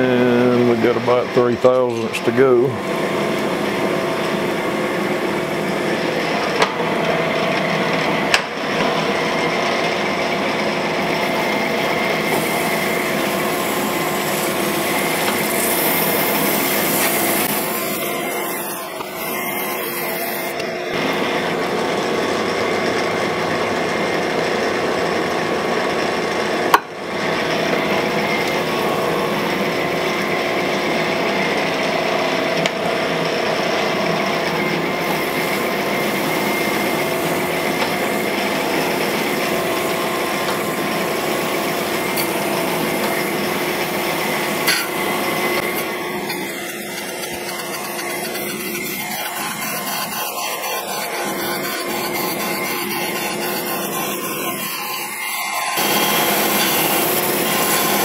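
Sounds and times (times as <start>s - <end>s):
machine hum: 0.0s - 58.0s
grinding wheel hiss: 11.0s - 21.3s, 34.8s - 58.0s.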